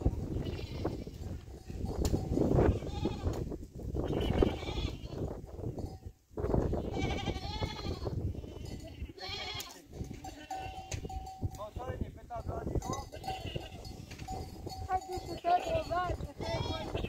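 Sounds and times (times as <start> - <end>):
goats bleating: 0.3 - 1.2, 2.7 - 3.4, 4.0 - 5.3, 6.8 - 11.1, 13.0 - 14.3, 14.9 - 17.0
hooves scuffing stony ground: 13.0 - 16.9.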